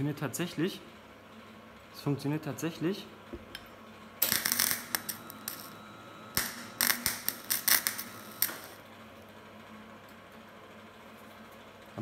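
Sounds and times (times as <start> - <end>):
welding arc on steel plate: 4.2 - 8.8.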